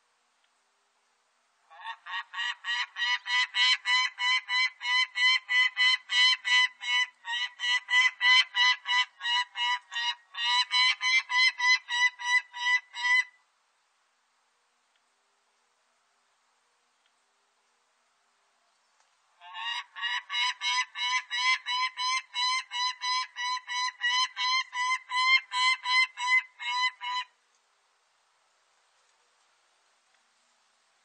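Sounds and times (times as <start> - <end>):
falcon kak calls: 1.7 - 13.4, 19.4 - 27.3.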